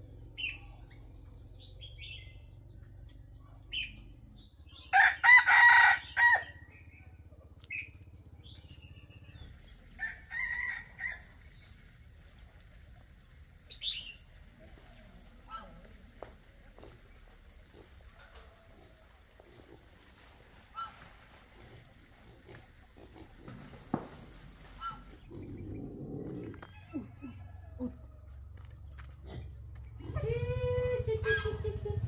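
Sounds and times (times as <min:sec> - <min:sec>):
rooster crowing: 0:04.9 - 0:06.6, 0:10.0 - 0:11.4, 0:18.2 - 0:19.2, 0:26.4 - 0:28.3.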